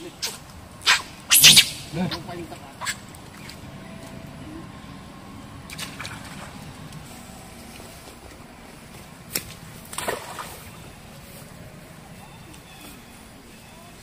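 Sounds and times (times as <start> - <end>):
steady background hiss: 0.0 - 14.0
sharp splashes: 0.2 - 2.0, 9.3 - 10.8
water sloshing and splashing: 5.6 - 11.4.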